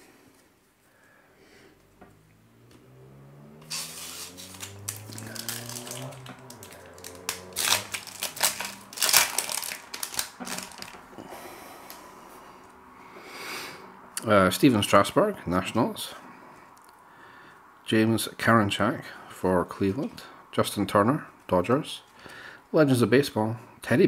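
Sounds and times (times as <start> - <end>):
wrapper tearing and crinkling: 3.7 - 11.1.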